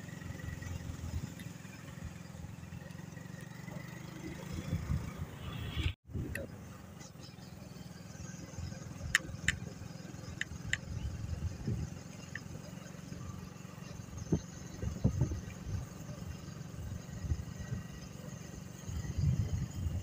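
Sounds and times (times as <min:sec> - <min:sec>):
motorcycle engine running: 0:00.0 - 0:20.0
wind rumble on microphone: 0:04.5 - 0:06.7, 0:10.6 - 0:12.0, 0:14.1 - 0:18.2, 0:18.8 - 0:20.0
sharp clicks: 0:09.0 - 0:09.7, 0:10.3 - 0:10.9.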